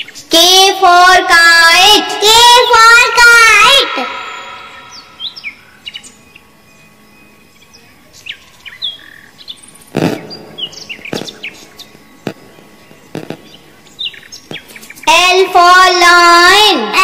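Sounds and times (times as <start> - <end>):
birds chirping: 0.0 - 0.4, 2.2 - 16.2
sharp knocks: 13.1 - 13.5.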